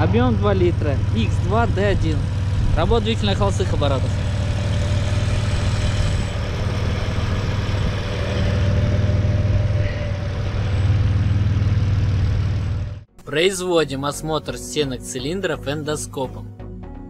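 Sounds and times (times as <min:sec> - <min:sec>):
petrol engine idling: 0:00.0 - 0:13.1.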